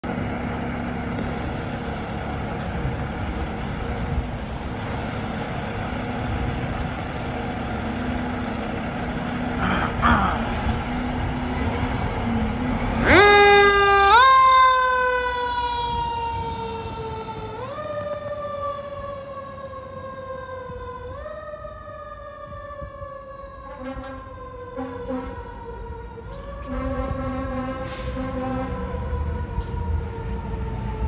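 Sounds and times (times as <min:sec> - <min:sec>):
diesel engine idling: 0:00.0 - 0:14.2
siren wailing: 0:08.9 - 0:31.0.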